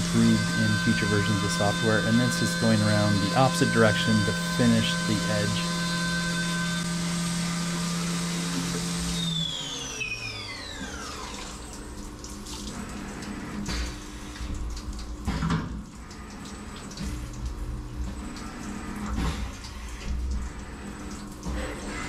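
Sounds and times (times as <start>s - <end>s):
spindle whine spinning down: 0.0s - 7.6s
milling machine cutting: 0.0s - 11.3s
coolant splashing and dripping: 0.0s - 22.0s.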